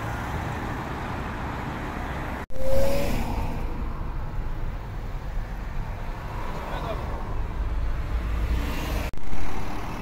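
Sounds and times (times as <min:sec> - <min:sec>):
road traffic noise: 0:00.0 - 0:10.0
short steady tone: 0:02.5 - 0:03.4.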